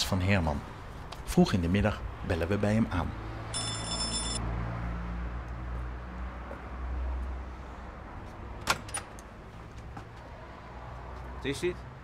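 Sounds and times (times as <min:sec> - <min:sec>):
low traffic rumble: 0:00.0 - 0:12.0
electric doorbell buzzing: 0:03.5 - 0:04.4.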